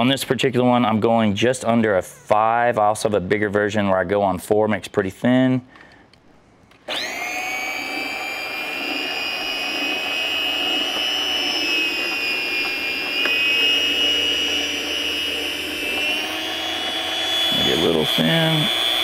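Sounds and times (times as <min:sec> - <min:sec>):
meat slicer motor whine: 0:06.9 - 0:19.0.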